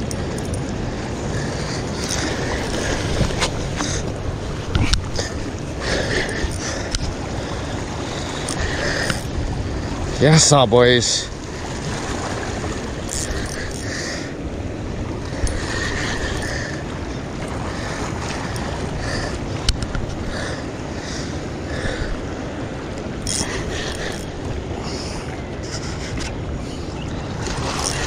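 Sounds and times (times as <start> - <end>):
wind noise on microphone: 0.0 - 10.2
water noise: 0.0 - 28.0.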